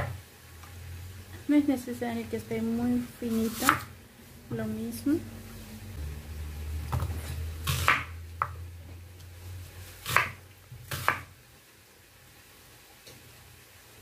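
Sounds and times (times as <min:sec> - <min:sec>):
knife chopping onion on board: 0:03.5 - 0:03.9, 0:06.9 - 0:08.6, 0:10.0 - 0:11.3
low hum: 0:03.9 - 0:09.6.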